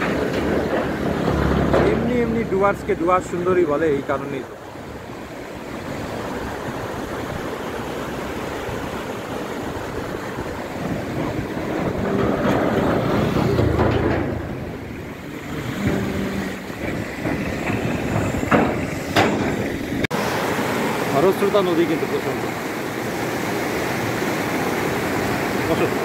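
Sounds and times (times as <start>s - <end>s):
motorcycle passing over bridge: 0.0s - 3.4s, 9.8s - 20.1s
river rushing over rocks: 0.0s - 26.0s.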